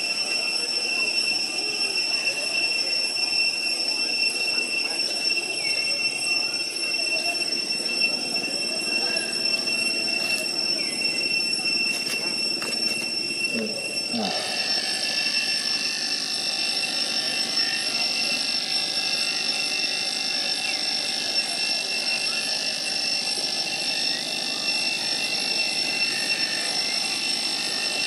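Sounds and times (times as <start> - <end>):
cicadas buzzing: 23.5 - 28.0.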